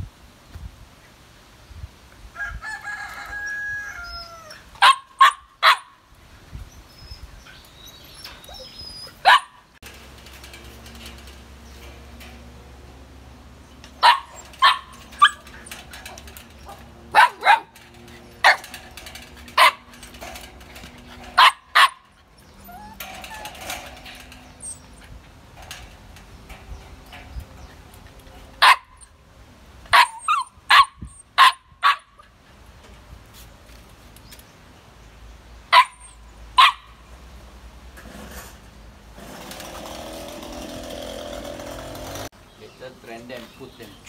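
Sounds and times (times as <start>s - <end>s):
puppies barking: 4.8s - 6.0s, 8.4s - 9.7s, 13.8s - 25.8s, 28.5s - 29.1s, 29.9s - 32.3s, 35.7s - 37.0s.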